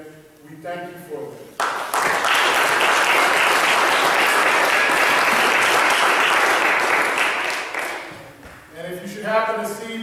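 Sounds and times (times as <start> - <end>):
crowd applauding: 1.6 - 8.2.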